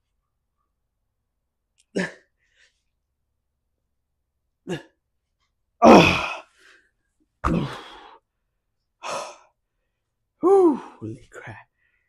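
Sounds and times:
man exhaling and grunting: 0:01.9 - 0:02.3, 0:04.6 - 0:05.0, 0:05.8 - 0:06.6, 0:07.4 - 0:08.2, 0:09.0 - 0:09.4, 0:10.4 - 0:11.0.

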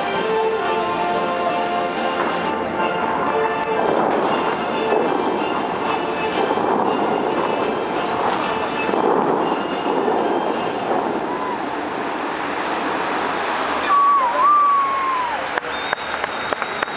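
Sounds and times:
water jets rushing hiss: 0:00.0 - 0:16.9
loud whistle sliding down: 0:13.8 - 0:16.9.

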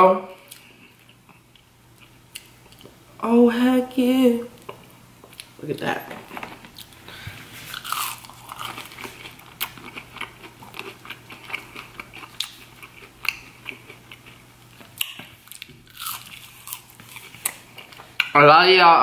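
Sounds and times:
crisp chewing crunches: 0:07.7 - 0:18.1.

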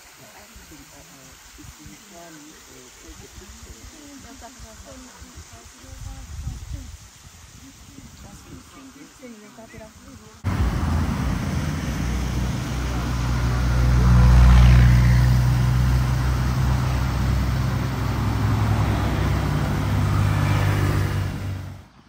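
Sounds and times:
rushing noise: 0:10.4 - 0:21.9.

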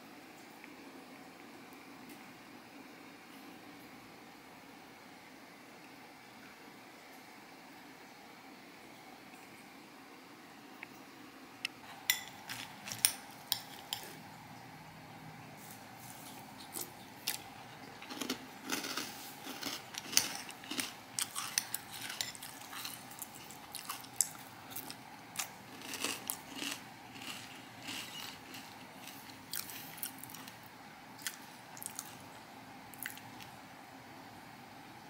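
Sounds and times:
chewing crunchy cereal: 0:16.6 - 0:32.3, 0:32.9 - 0:33.5.

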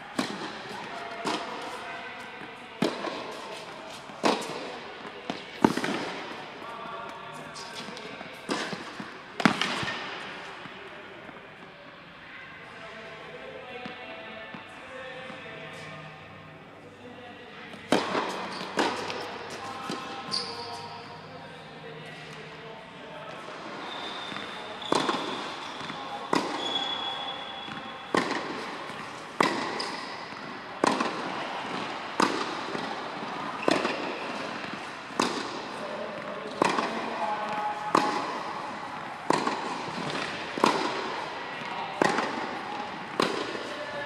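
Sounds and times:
tennis ball struck by racket: 0:00.1 - 0:01.8, 0:02.4 - 0:06.4, 0:07.6 - 0:10.4, 0:17.8 - 0:20.6, 0:24.3 - 0:26.7, 0:27.7 - 0:43.7.

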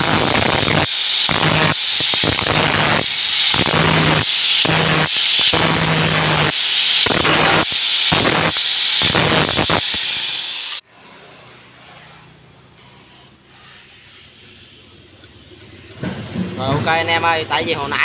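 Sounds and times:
angle grinder grinding metal: 0:00.0 - 0:10.8.

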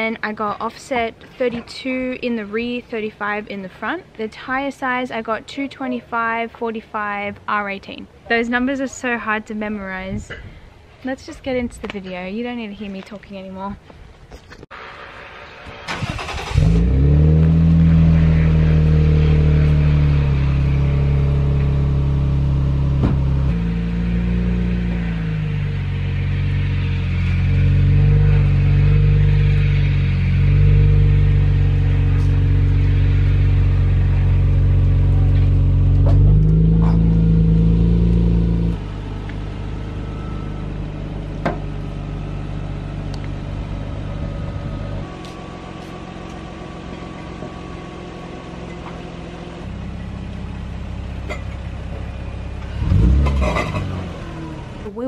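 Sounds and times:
car engine idling: 0:14.8 - 0:55.0.

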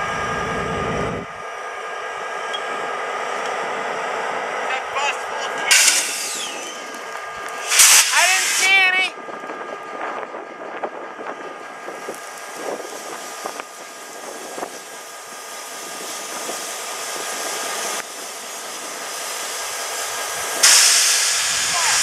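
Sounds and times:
diesel locomotive idling: 0:00.0 - 0:22.0
rushing hiss: 0:05.7 - 0:06.9, 0:07.5 - 0:08.8, 0:12.2 - 0:22.0.

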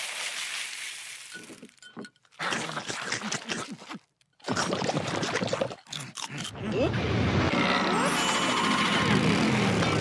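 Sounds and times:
cereal pouring and gobbling: 0:00.0 - 0:01.8.

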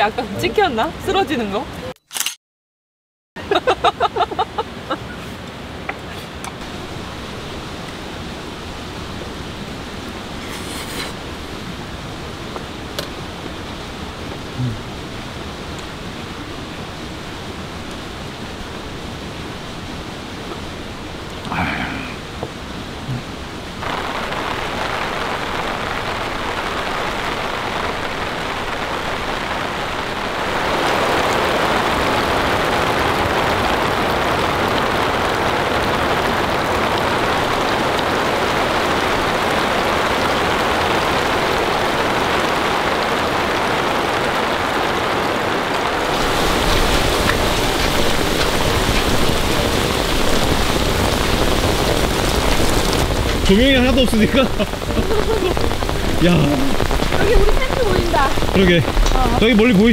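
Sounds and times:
heavy rain pouring: 0:00.0 - 0:01.9, 0:03.4 - 0:59.9
deep rumble: 0:45.9 - 0:59.9.

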